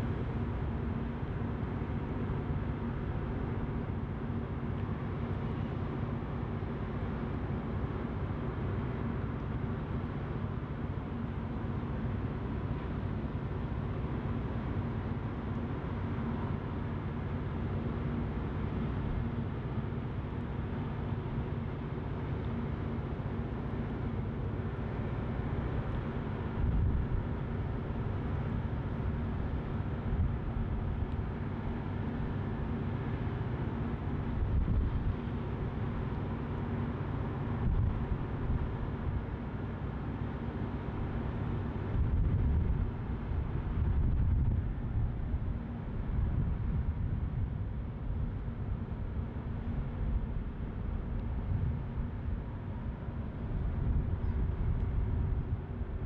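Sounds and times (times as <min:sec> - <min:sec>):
wind buffeting microphone: 0:26.2 - 0:27.5, 0:41.8 - 0:47.8, 0:53.4 - 0:56.0.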